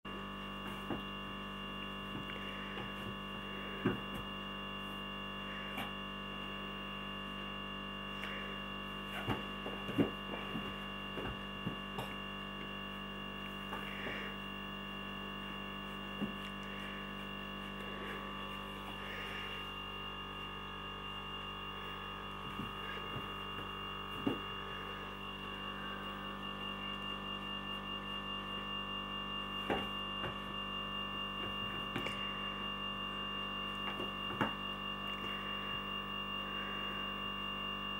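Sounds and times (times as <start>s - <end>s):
electrical hum: 0.0s - 37.9s
soft thumps and scuffs: 9.1s - 12.3s, 15.9s - 19.2s, 22.4s - 24.8s.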